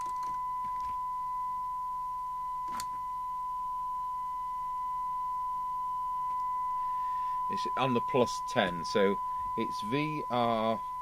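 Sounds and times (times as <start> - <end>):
radio loudspeaker test tone: 0.0 - 11.0.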